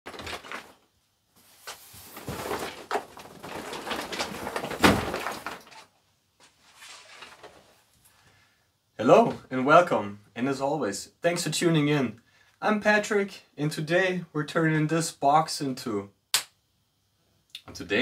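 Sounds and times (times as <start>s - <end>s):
cardboard rustling and scraping: 0.1s - 7.9s.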